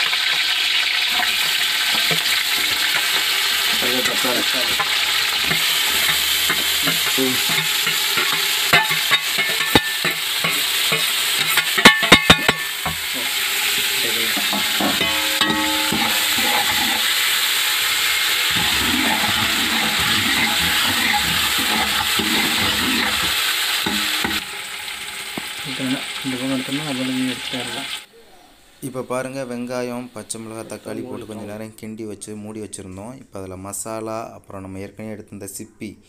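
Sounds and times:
vegetables sizzling in hot oil: 0.0 - 28.1.

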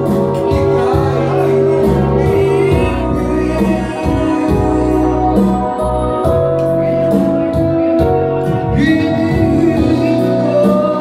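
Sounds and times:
loud music with organ-like chords: 0.0 - 11.0.

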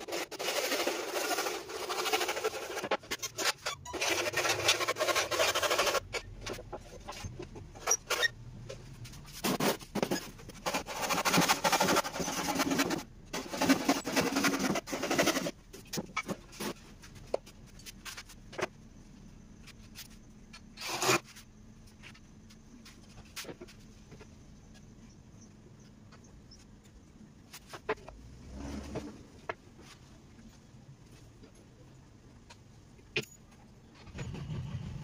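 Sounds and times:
hand saw cutting wood: 0.0 - 6.0, 10.6 - 15.5.

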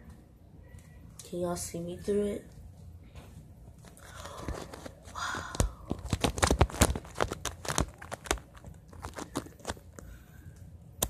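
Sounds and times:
plastic bubble crackling and crinkling: 3.8 - 10.1.

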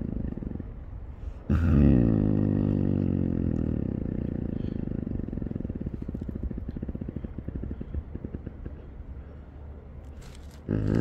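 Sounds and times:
snow leopard growling: 1.5 - 9.1, 10.2 - 11.0.

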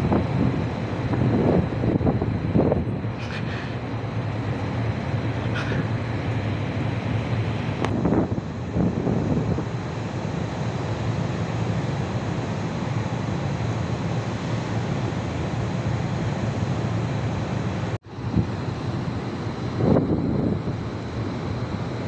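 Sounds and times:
wind rushing over microphone: 0.0 - 9.9, 18.2 - 22.0.

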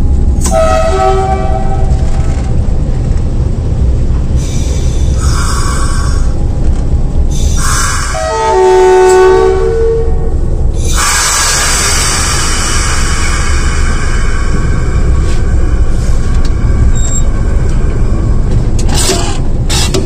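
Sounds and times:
diesel locomotive engine rumble: 0.0 - 20.0
multi-tone locomotive horn: 0.4 - 2.2, 7.6 - 12.1.

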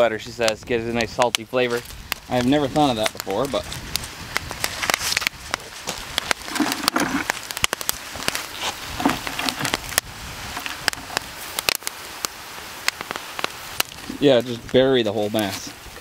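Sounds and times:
seaweed crackling and sizzling: 0.0 - 16.0
rustle of seaweed strands: 4.0 - 16.0.

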